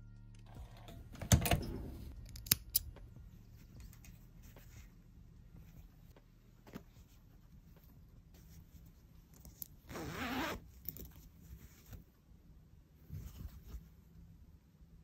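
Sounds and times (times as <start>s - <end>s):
zipper pulled open: 9.9s - 10.7s.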